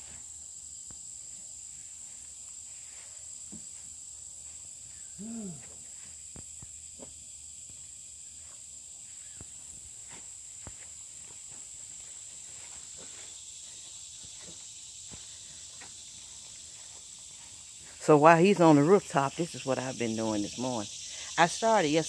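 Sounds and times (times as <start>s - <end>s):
insects droning: 0.0s - 22.0s
short low voiced sound: 5.2s - 5.8s.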